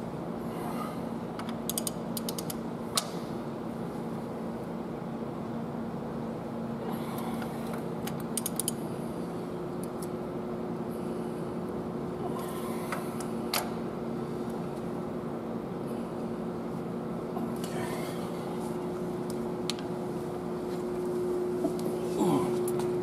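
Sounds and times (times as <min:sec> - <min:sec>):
steady background hum: 0:00.0 - 0:23.0
ratchet wrench clicking: 0:01.7 - 0:02.6, 0:08.4 - 0:08.8.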